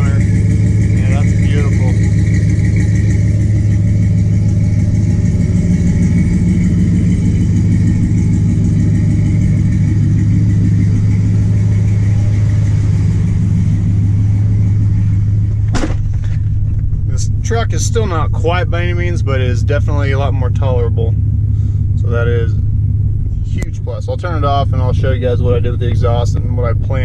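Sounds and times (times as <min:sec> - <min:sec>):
truck engine idling: 0:00.0 - 0:27.0.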